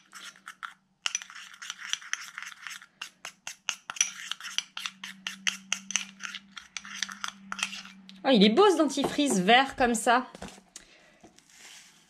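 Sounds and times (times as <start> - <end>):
spoon scraping and clinking glass jar: 0.0 - 8.2.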